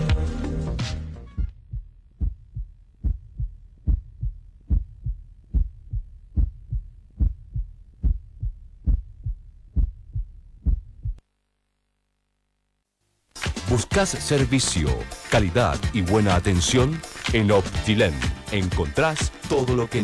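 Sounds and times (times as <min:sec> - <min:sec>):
heartbeat double thump: 0:01.3 - 0:11.2.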